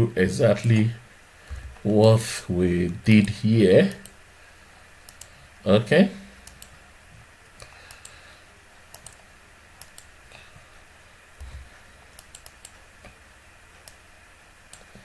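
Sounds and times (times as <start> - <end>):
keyboard and mouse clicks: 5.1 - 5.3, 6.4 - 6.7, 8.9 - 9.2, 9.8 - 10.1, 11.4 - 13.2, 14.7 - 15.0.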